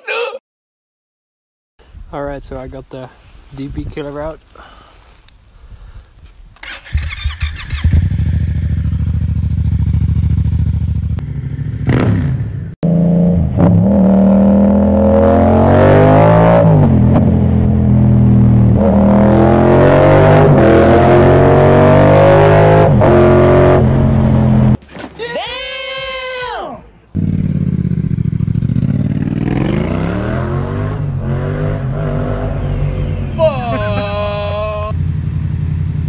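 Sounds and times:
motorcycle engine: 0:06.6 - 0:24.8, 0:27.1 - 0:36.0.

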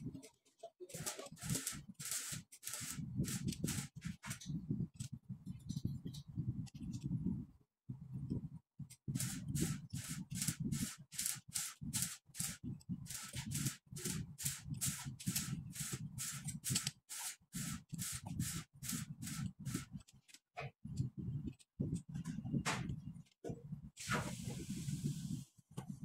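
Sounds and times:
hand tool rasping metal: 0:01.0 - 0:04.4.

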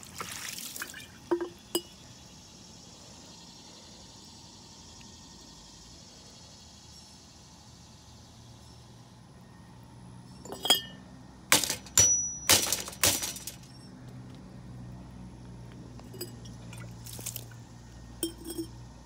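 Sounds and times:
hard objects clinking: 0:10.4 - 0:13.9, 0:18.2 - 0:18.8.

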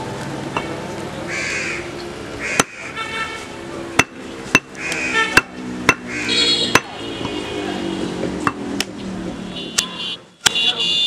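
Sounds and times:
cleaver chopping meat on wood: 0:02.4 - 0:02.8, 0:04.0 - 0:07.4.

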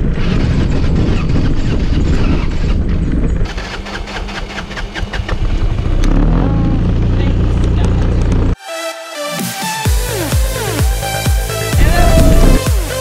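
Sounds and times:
wind buffeting microphone: 0:00.0 - 0:05.9, 0:11.8 - 0:12.6
motorbike engine running: 0:00.5 - 0:08.6.

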